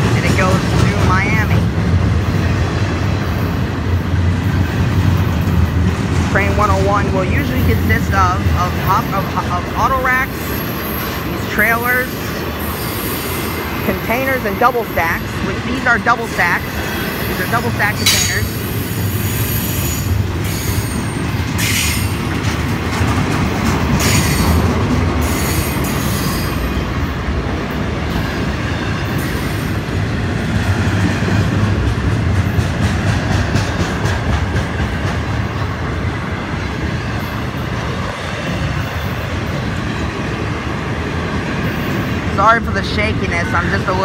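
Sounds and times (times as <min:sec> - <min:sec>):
freight train wheels rumbling on rail: 0:00.0 - 0:44.0.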